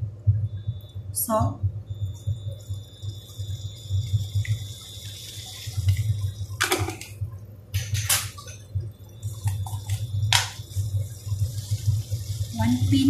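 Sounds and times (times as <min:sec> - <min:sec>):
vegetables sizzling in a wok: 0:09.2 - 0:13.0.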